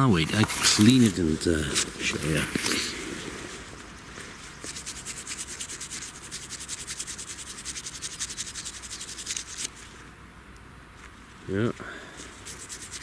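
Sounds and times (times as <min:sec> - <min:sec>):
scrubbing metal object: 0:04.6 - 0:09.7, 0:12.4 - 0:13.0.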